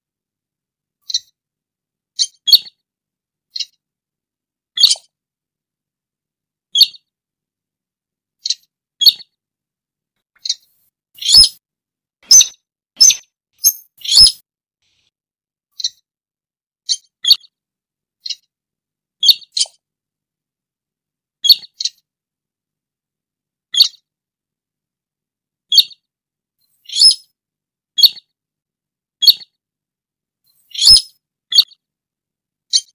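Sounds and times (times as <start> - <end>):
bird giving sharp high calls: 11.2 - 11.6, 12.3 - 14.4, 26.9 - 27.2, 30.7 - 31.7.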